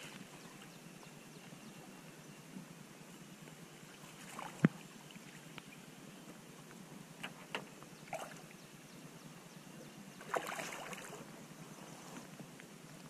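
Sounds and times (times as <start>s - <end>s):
low steady water noise: 0.0s - 13.0s
fish splashing: 10.2s - 11.2s.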